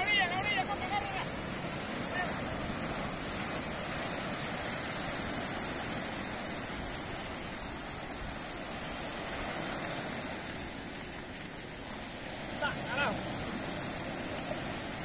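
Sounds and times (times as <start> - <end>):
small waves breaking on beach: 0.0 - 15.0.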